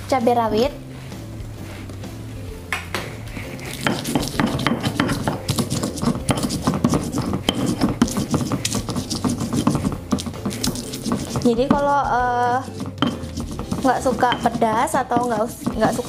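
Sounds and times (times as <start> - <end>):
stone pestle grinding in mortar: 3.3 - 16.0.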